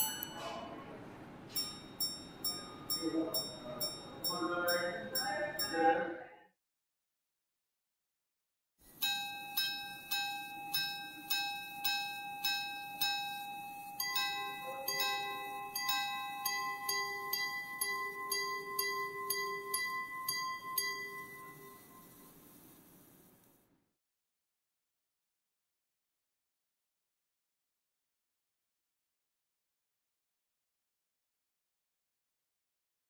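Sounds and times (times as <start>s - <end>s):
pocket watch chiming: 0.0s - 0.6s, 1.5s - 5.8s, 8.9s - 22.6s.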